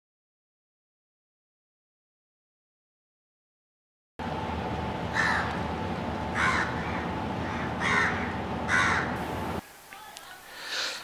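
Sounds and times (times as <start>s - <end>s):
low background hum: 4.2s - 9.6s
crow cawing: 5.1s - 5.6s, 6.3s - 9.2s.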